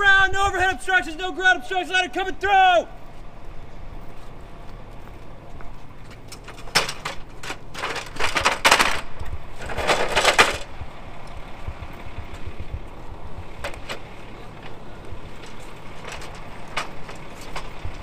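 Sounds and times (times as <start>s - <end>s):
low steady rumble: 0.0s - 18.0s
ladder clattering and scraping: 6.0s - 10.8s, 13.6s - 18.0s.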